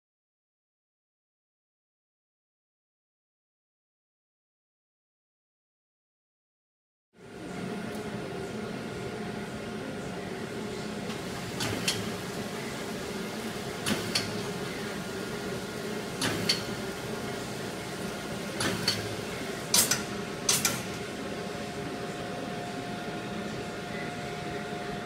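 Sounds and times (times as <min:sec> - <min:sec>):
wrapping machine humming: 0:07.2 - 0:25.0
sharp mechanism clicks: 0:19.7 - 0:20.9.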